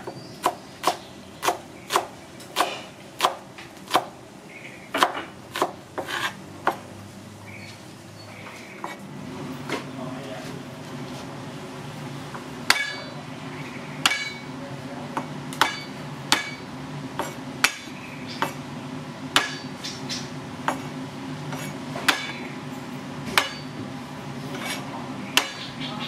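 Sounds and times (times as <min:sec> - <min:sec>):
cleaver chopping on cutting board: 0:00.0 - 0:04.1, 0:05.0 - 0:06.9, 0:17.2 - 0:18.6.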